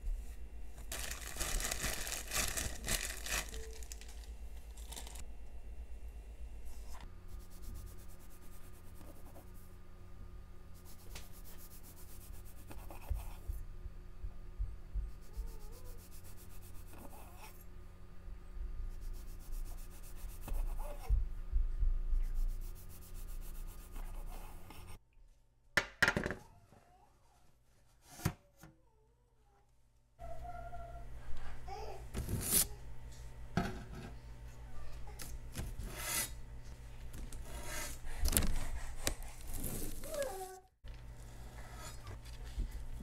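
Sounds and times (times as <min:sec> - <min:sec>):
rubbing and handling sounds: 0:00.0 - 0:05.2, 0:22.2 - 0:25.0, 0:37.1 - 0:43.0
steady hum: 0:00.0 - 0:25.0.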